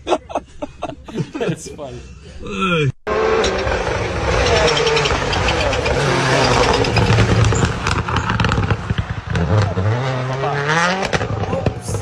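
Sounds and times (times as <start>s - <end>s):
rally car engine revving: 3.1s - 12.0s
exhaust pops crackling: 3.4s - 12.0s.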